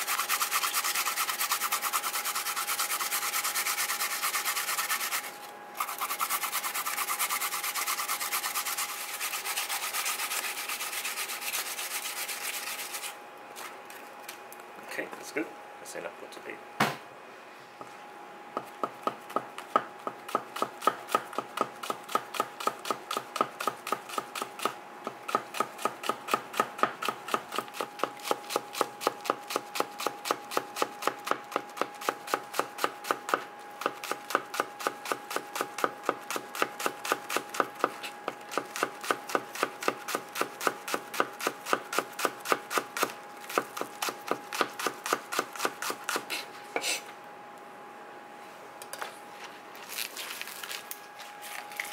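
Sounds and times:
knife chopping on a cutting board: 0:18.6 - 0:46.3.

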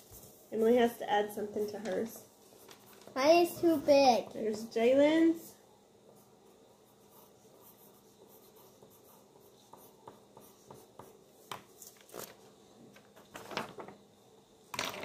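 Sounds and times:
notebook paper rustling: 0:11.7 - 0:14.0.

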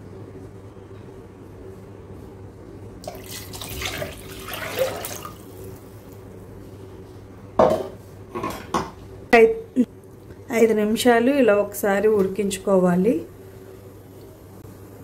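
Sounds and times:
liquid pouring into metal pot: 0:03.0 - 0:05.6
steady low hum: 0:05.2 - 0:15.0.

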